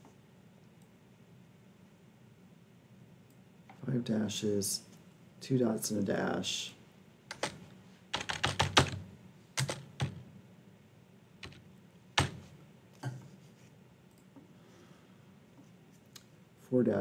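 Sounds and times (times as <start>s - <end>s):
keyboard keystrokes: 7.3s - 7.6s, 9.6s - 10.2s, 11.4s - 11.6s.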